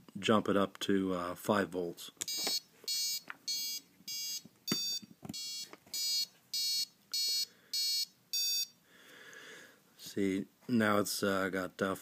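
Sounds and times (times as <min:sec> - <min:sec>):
short high-pitched buzzer beeps: 0:02.3 - 0:08.8.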